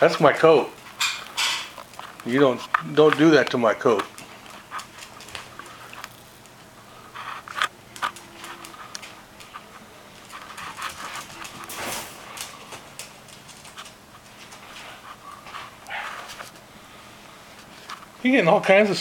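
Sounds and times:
claws clicking on wooden floor: 0:01.8 - 0:06.6.

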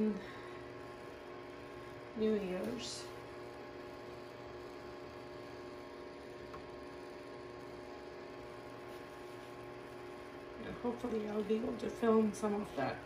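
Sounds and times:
electrical hum with tones: 0:00.0 - 0:13.0.

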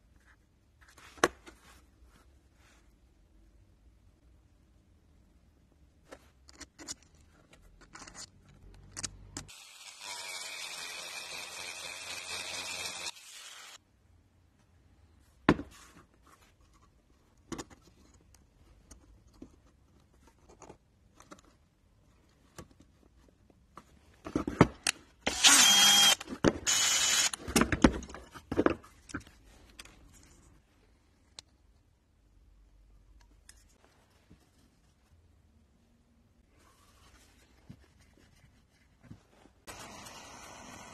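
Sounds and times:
rotary tool whirring on brass: 0:25.3 - 0:27.4.

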